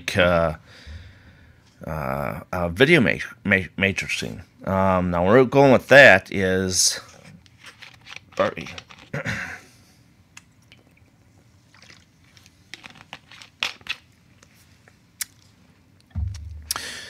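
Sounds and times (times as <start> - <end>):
crunchy crinkling handling noises: 7.2 - 9.2, 11.7 - 15.6.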